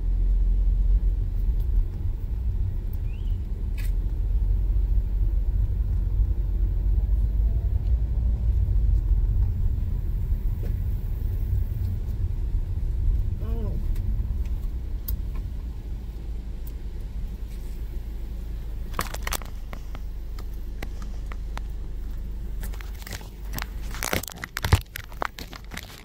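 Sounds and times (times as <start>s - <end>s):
car cabin rumble: 0.0s - 26.0s
crinkling rustles: 18.9s - 21.8s, 22.5s - 26.0s.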